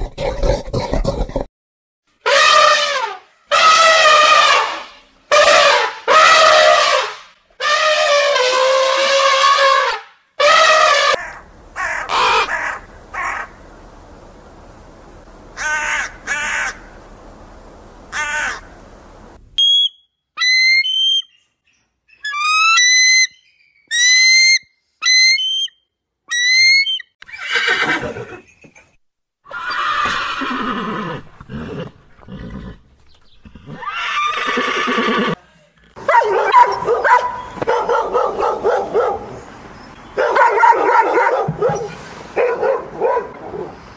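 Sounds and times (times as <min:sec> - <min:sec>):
elephant trumpeting: 0:02.2 - 0:13.6
dog barking: 0:36.0 - 0:39.4, 0:40.2 - 0:43.8.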